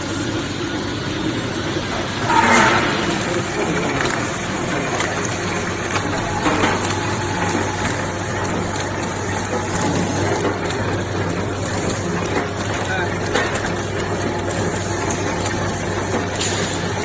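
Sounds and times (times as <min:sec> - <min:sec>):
low machine hum: 0:00.0 - 0:17.0
wrapping machine clattering: 0:01.9 - 0:17.0.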